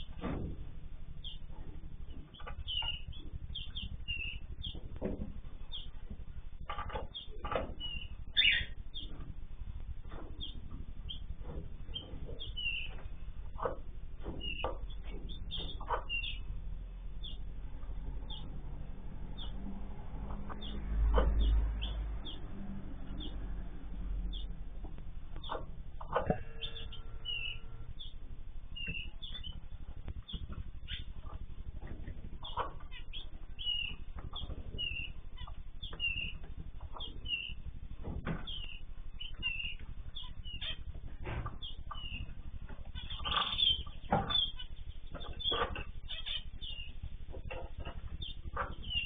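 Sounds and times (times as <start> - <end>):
small birds chirping: 0.0 - 49.0
wings fluttering: 22.9 - 49.0.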